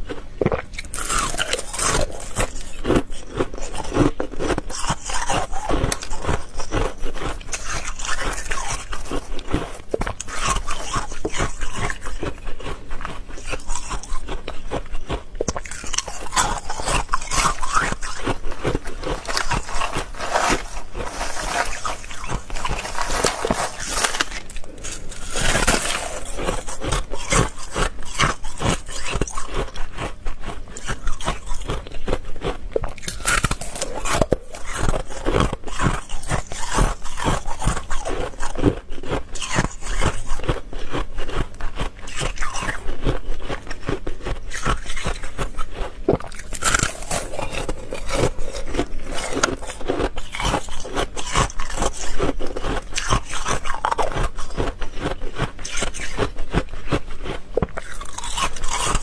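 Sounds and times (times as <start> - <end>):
ice being crunched: 0.8 - 9.6, 15.5 - 30.1, 33.0 - 45.2, 45.8 - 56.6, 57.2 - 59.0.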